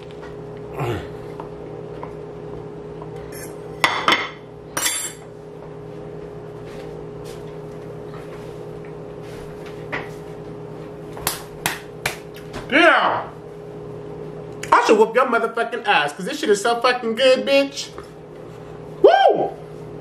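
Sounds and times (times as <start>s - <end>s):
steady hum: 0.0s - 20.0s
tableware clinks and knocks: 3.9s - 5.2s.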